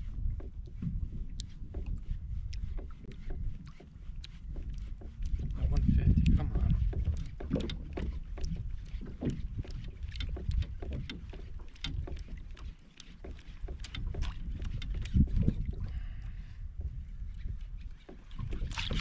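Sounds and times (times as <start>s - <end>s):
wind buffeting microphone: 0.0s - 12.7s, 13.6s - 19.0s
water lapping against hull: 0.0s - 19.0s
small knocks and splashes: 2.6s - 16.2s, 17.9s - 19.0s.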